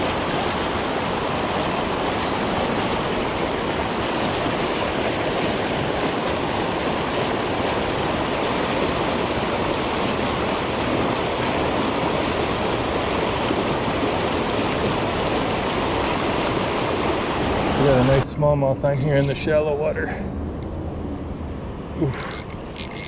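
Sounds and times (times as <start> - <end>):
river water rushing over dam: 0.0 - 18.3.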